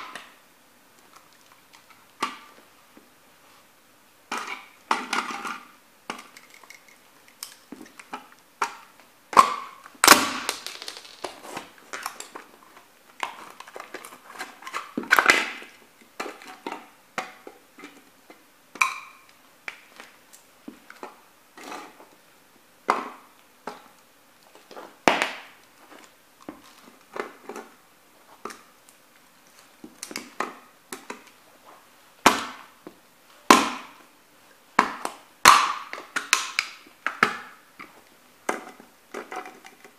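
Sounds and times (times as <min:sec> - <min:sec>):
broken pieces clattering on board: 0:09.4 - 0:12.3.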